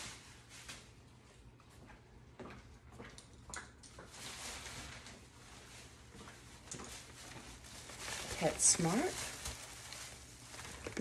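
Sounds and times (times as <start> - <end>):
plastic bag rustling: 0.0 - 1.0, 4.1 - 11.0
footsteps on tile floor: 0.0 - 11.0.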